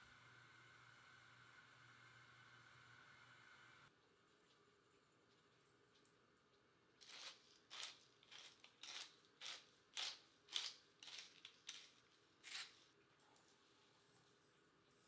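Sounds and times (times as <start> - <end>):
pepper mill grinding peppercorns: 7.0 - 12.8.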